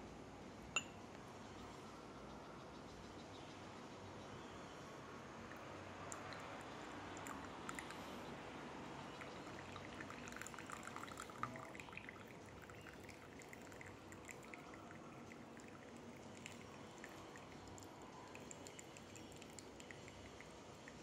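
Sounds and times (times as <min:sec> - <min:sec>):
tea pouring into a cup: 0:05.5 - 0:21.0.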